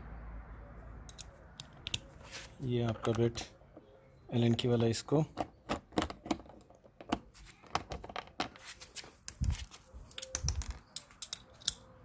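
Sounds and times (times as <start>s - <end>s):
hand tools clicking and tapping: 9.2s - 11.9s.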